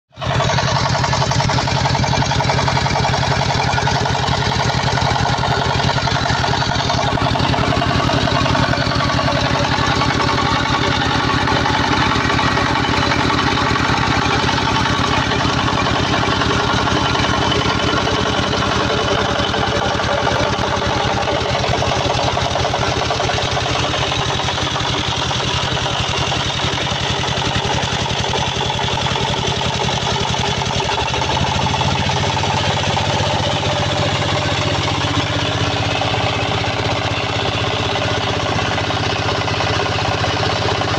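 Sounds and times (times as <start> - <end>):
small engine running: 0.1 - 40.9.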